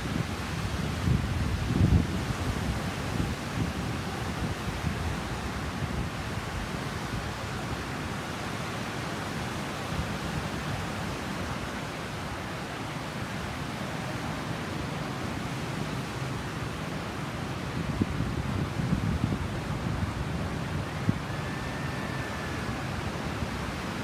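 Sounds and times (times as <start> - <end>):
wind noise on microphone: 0.0 - 12.0, 17.0 - 24.0.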